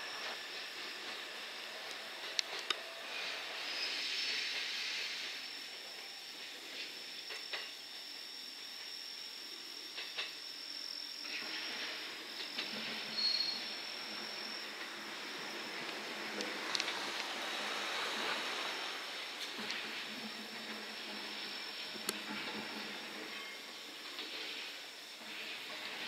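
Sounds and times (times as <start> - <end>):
electric train running slowly: 0.0 - 26.0
high insect trill: 0.0 - 26.0.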